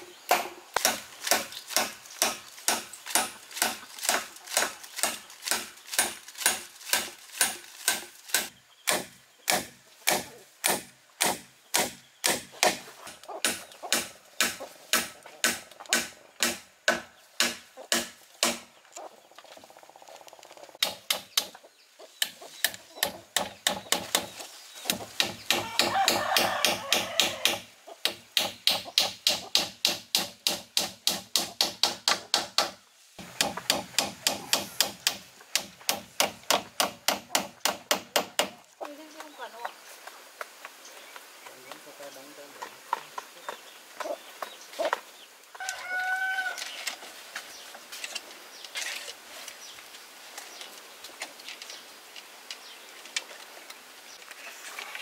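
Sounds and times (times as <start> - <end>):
hand tool striking material: 0.3 - 18.7, 24.9 - 38.6.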